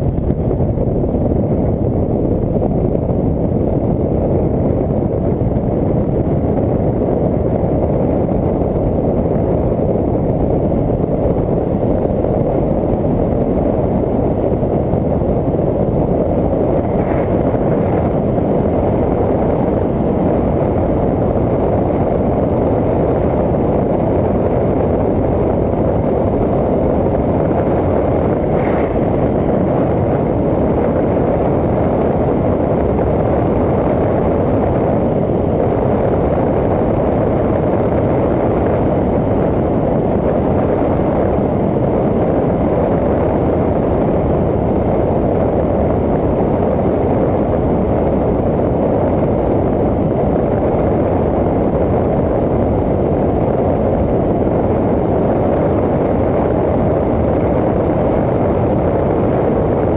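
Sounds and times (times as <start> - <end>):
road noise: 4.6 - 41.2
wind rushing: 9.3 - 41.2.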